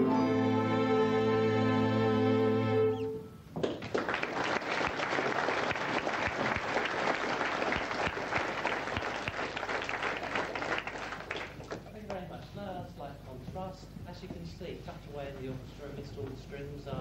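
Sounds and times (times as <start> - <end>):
orchestra holding a chord: 0.0 - 3.2
audience clapping: 3.6 - 12.2.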